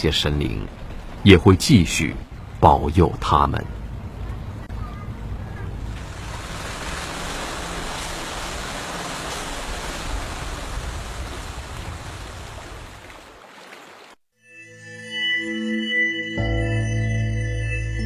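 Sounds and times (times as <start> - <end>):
lake water around boat: 0.0 - 14.2
wind: 0.0 - 14.2.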